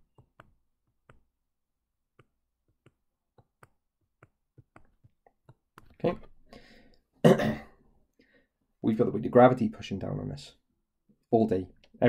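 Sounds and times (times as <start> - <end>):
pen stylus tapping on tablet: 0.0 - 1.4, 2.1 - 6.0.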